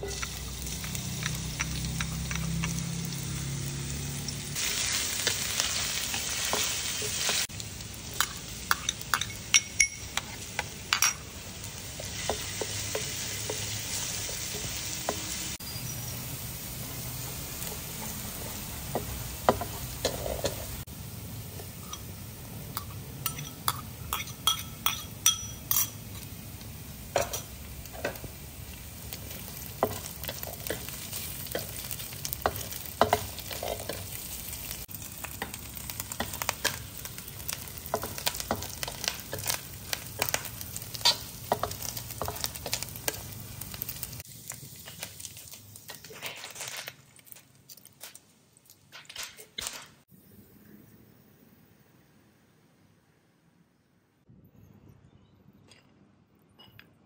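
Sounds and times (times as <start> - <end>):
food sizzling in oil: 0.0 - 49.7
spatula scraping a wok: 17.3 - 20.9.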